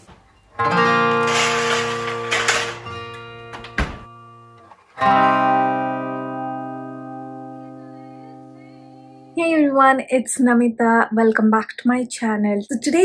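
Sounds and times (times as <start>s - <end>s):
acoustic guitar chords strummed: 0.0s - 9.4s.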